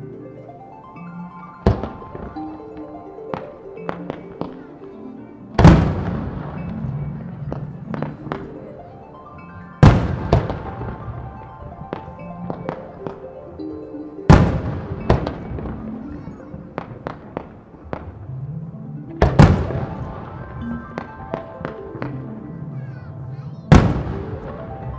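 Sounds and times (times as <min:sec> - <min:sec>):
music: 0:00.0 - 0:24.9
firework booms: 0:05.6 - 0:06.6, 0:19.2 - 0:20.1, 0:23.7 - 0:24.5.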